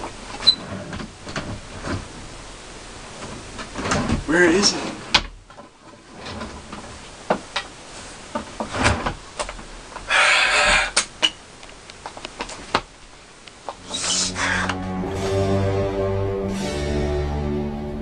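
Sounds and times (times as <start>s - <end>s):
sliding scrape: 10.1s - 11.0s.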